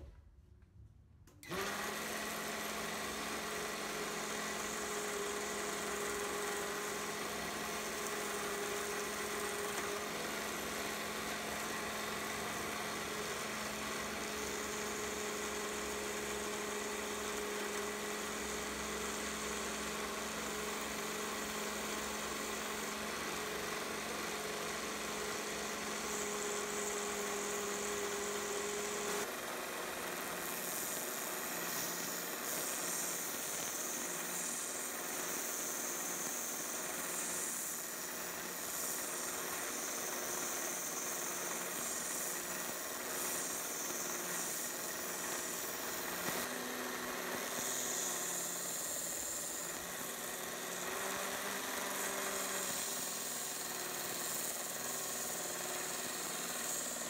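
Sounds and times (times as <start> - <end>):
belt grinder motor whine: 1.4 - 57.0
sanding hiss: 30.4 - 57.0.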